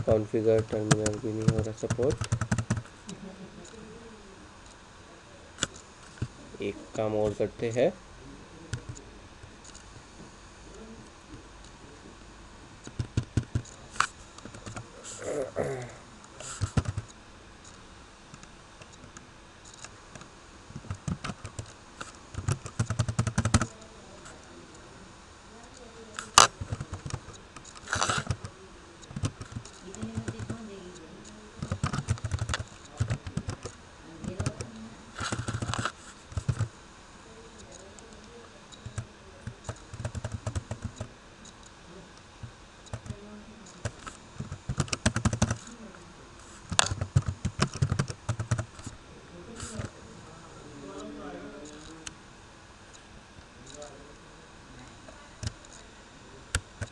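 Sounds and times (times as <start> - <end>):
typing on computer keyboard: 0.6 - 2.9, 16.6 - 17.1, 20.8 - 21.7, 22.3 - 23.8, 26.4 - 30.6, 31.6 - 34.7, 35.3 - 36.7, 38.8 - 41.1, 42.9 - 45.7, 46.7 - 48.7.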